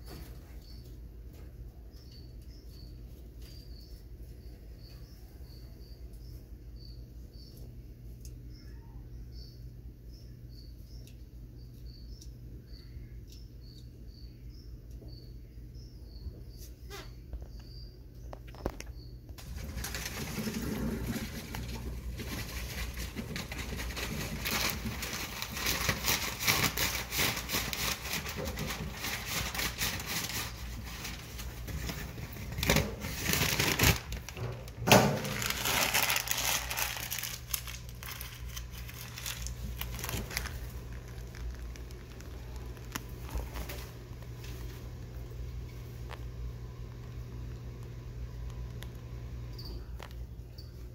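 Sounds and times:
crinkling and rustling handling noise: 18.3 - 49.0.

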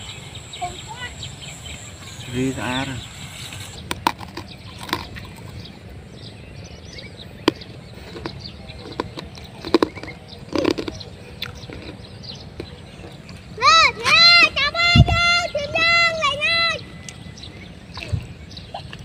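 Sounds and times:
faint chirps: 0.0 - 5.8
wind buffeting microphone: 0.0 - 18.7
sharp clicks and taps: 7.4 - 12.0.

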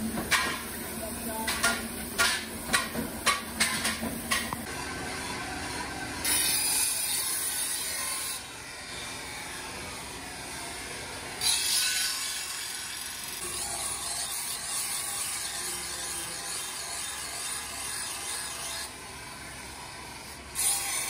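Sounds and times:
grinding wheel grinding steel: 4.6 - 21.0.

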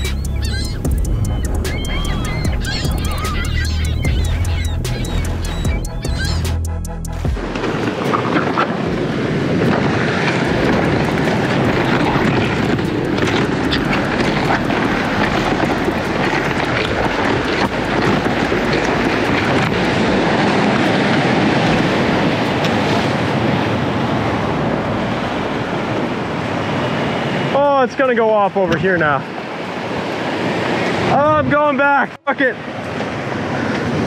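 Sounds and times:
wind buffeting microphone: 0.0 - 6.7, 7.3 - 34.0
surf washing over rocks: 7.4 - 34.0.

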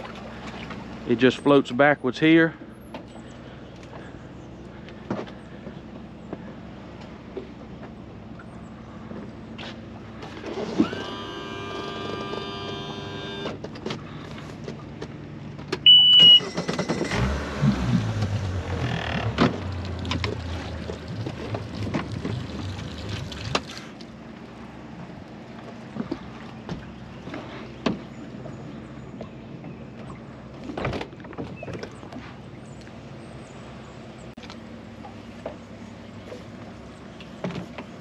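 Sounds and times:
outboard engine rumbling: 0.0 - 38.0
small electric motor whining: 10.6 - 13.6
loud high beep: 15.9 - 16.6.

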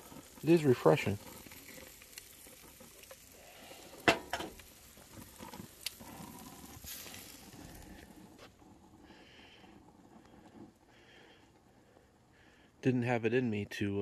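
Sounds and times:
burgers sizzling on a grill: 0.0 - 12.7.

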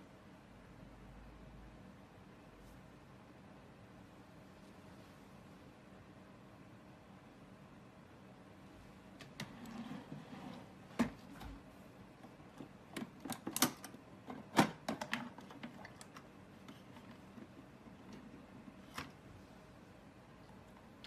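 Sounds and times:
plastic chargers clicking in drawer: 12.4 - 16.8.

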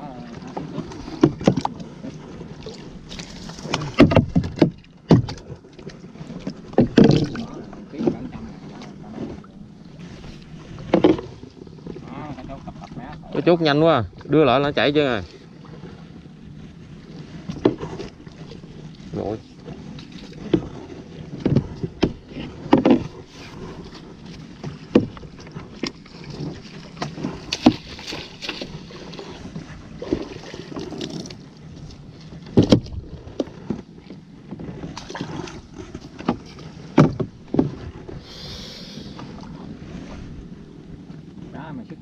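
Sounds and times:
paddle swishing through water: 0.0 - 42.0
paddle knocking against hull: 0.3 - 16.0, 17.2 - 38.2.

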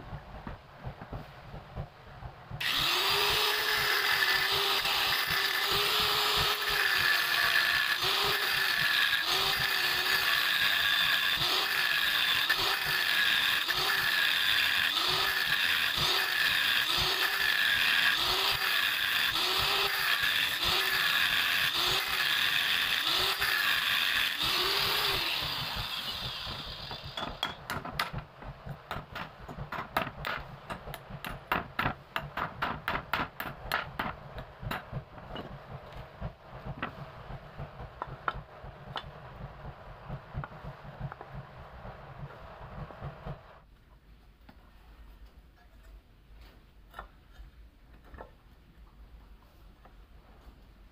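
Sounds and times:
angle grinder grinding metal: 2.6 - 27.6.

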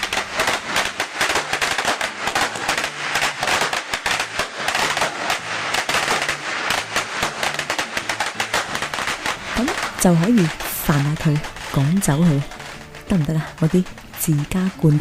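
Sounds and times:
firecrackers going off: 0.0 - 15.0.

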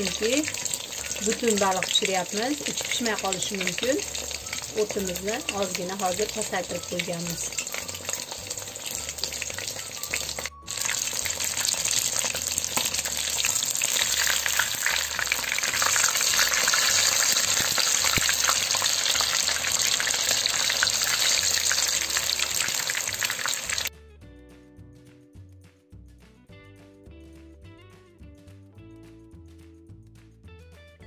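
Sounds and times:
fish deep-frying in oil: 0.0 - 23.9
soft music: 0.0 - 31.0.

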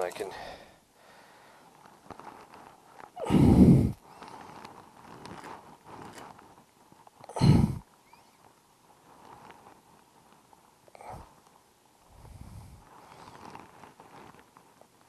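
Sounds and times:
heavy exhales of effort: 0.3 - 1.6, 3.2 - 4.0, 7.3 - 7.8, 11.0 - 11.3.

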